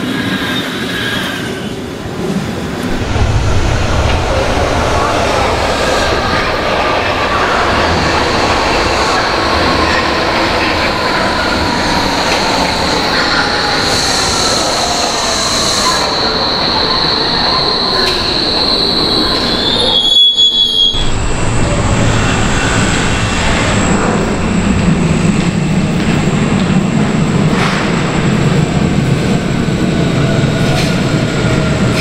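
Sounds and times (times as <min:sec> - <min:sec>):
metro train wheels squealing: 0:00.0 - 0:02.0, 0:05.3 - 0:25.2
electric train approaching: 0:00.2 - 0:32.0.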